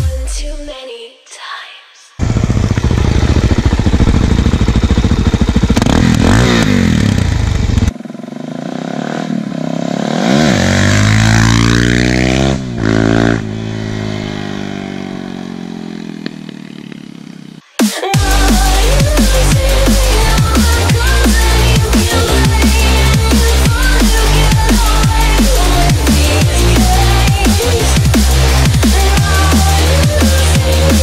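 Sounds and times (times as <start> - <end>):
motorcycle accelerating past: 2.2 - 17.6
motorcycle engines running: 2.2 - 17.6, 18.2 - 31.0.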